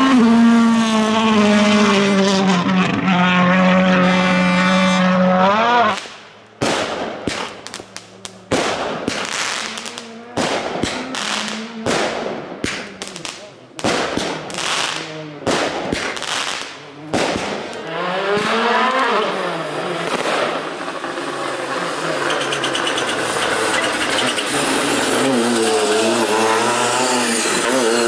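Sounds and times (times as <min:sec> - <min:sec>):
rally car engine revving: 0:00.0 - 0:28.0
fireworks bangs: 0:06.0 - 0:19.0, 0:19.9 - 0:26.6.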